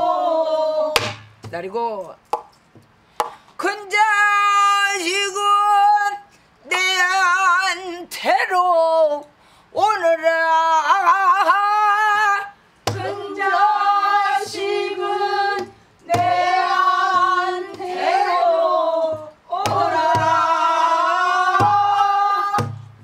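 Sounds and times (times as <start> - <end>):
low drum thuds: 19.0 - 23.0.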